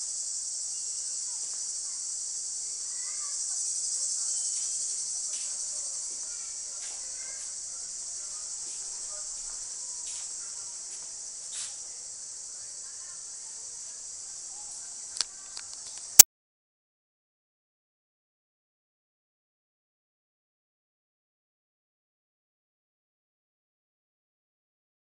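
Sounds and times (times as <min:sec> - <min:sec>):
insects chorus: 0:00.0 - 0:16.2.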